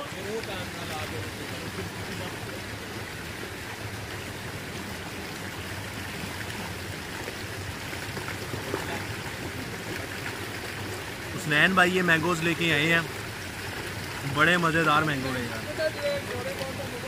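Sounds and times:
water flowing into a tank: 0.0s - 17.0s.

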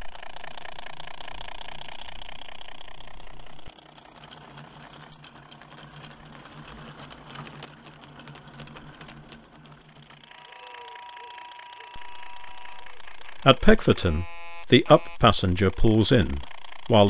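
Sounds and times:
wagon wheels ticking over track: 0.0s - 14.2s, 15.2s - 17.0s
model locomotive motor whining: 0.0s - 17.0s.

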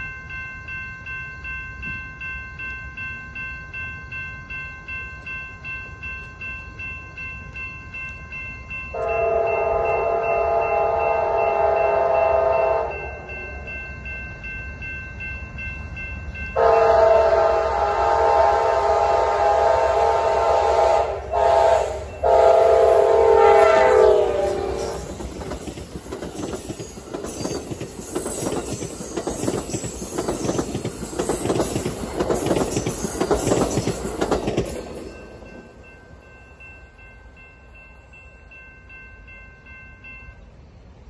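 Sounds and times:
train cars rumbling over rails: 0.0s - 41.0s
train air horn: 8.9s - 13.2s, 16.6s - 25.1s.

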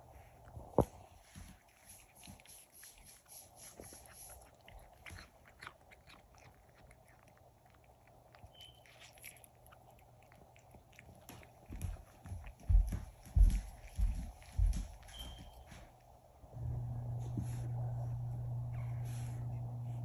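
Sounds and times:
cat chewing clicks: 1.7s - 12.6s.

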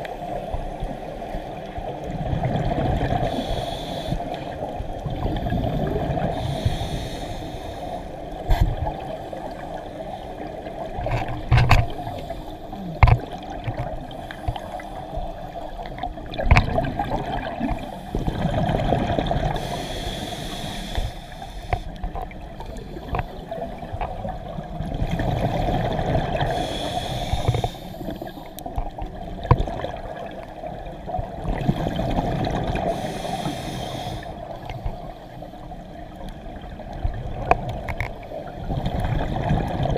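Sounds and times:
diver breathing through regulator: 3.2s - 4.6s, 5.3s - 9.8s, 11.8s - 13.2s, 14.0s - 15.3s, 19.4s - 22.1s, 26.4s - 28.6s, 31.8s - 35.8s.

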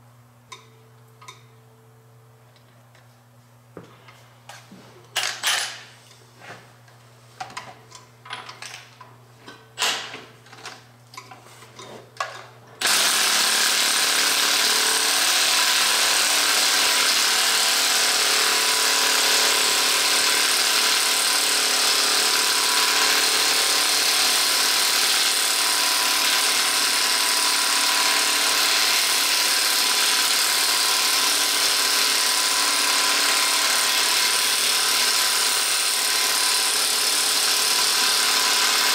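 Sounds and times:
hand-held power tool running: 12.8s - 38.9s.

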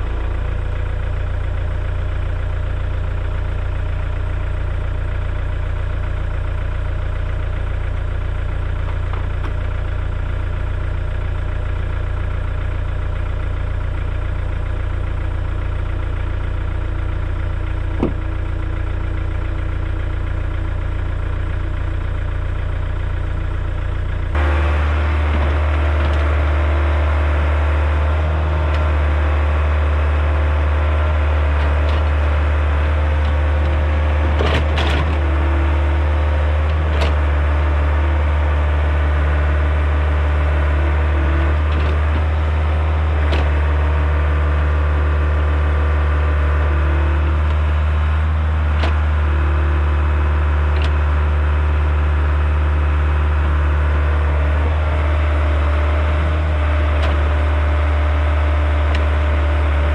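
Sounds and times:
excavator diesel engine running: 0.0s - 59.9s
sharp knocks and clunks: 18.0s - 18.2s.

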